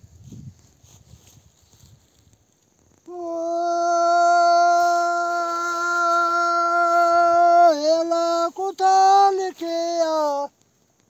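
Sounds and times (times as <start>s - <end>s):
man singing folk verse: 3.1s - 10.5s.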